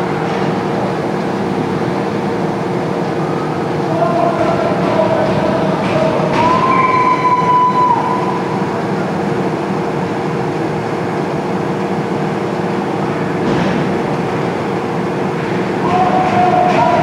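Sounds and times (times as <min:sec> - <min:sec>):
low machinery hum: 0:00.0 - 0:17.0
ice rink crowd din: 0:03.1 - 0:08.7, 0:15.4 - 0:17.0.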